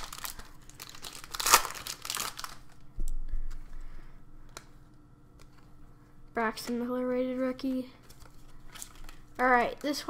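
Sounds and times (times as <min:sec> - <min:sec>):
foil pack crinkling: 0:00.0 - 0:02.8, 0:08.0 - 0:10.0.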